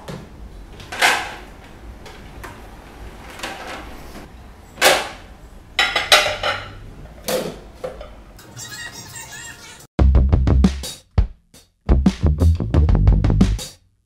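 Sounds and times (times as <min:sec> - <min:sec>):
ceramic plates clinking: 0:05.8 - 0:06.8.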